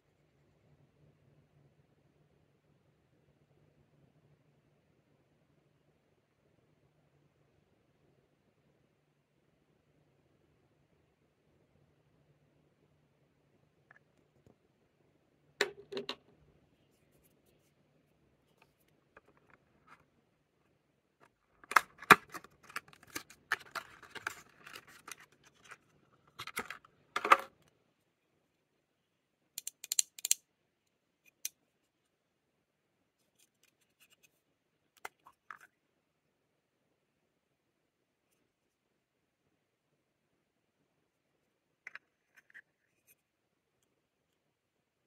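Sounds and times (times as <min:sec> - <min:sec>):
packaging clicks: 0:21.6 - 0:25.7.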